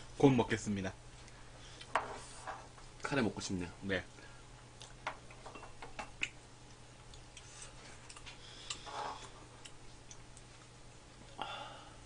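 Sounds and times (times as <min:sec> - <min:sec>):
low steady hum: 0:00.0 - 0:12.0
chewing: 0:06.2 - 0:10.6.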